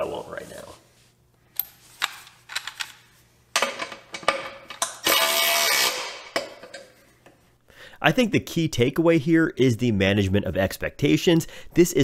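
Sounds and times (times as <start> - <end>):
cordless ratchet bursts: 5.0 - 6.2.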